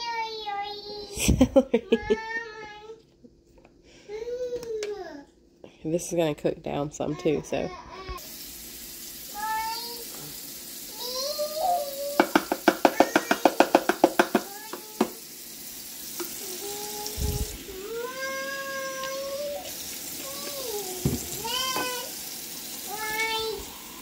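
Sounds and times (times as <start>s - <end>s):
tap running into a metal sink: 12.0s - 15.3s, 16.0s - 16.5s, 19.0s - 23.4s
rapid sharp knocks: 12.2s - 15.2s.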